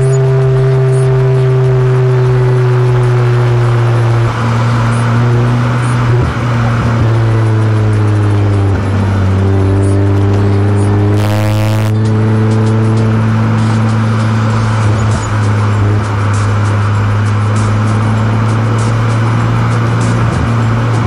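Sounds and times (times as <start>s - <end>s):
background music: 0.0s - 21.0s
car cabin engine drone: 0.0s - 21.0s.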